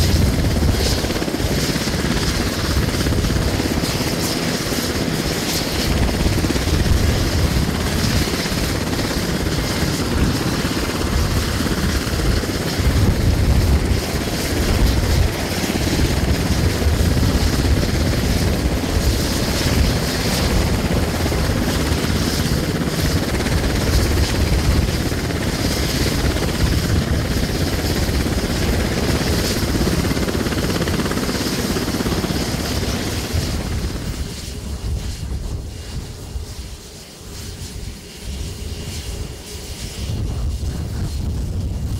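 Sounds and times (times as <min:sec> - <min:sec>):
rotor blades beating: 0:00.0 - 0:34.4
helicopter engines whining: 0:00.0 - 0:41.9.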